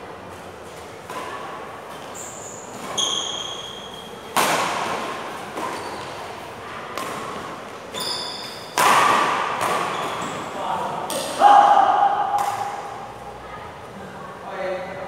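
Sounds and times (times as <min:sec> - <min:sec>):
rackets hitting shuttlecock: 0:01.0 - 0:13.1
sneakers squeaking on court: 0:01.9 - 0:04.3, 0:05.4 - 0:08.8, 0:09.6 - 0:10.6.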